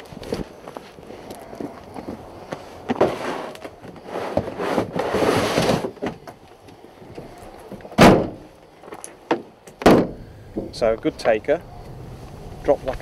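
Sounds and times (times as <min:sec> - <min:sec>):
plastic tub scraping on truck bed: 0:02.1 - 0:06.2
tailgate slamming shut: 0:07.8 - 0:08.5, 0:09.3 - 0:10.8.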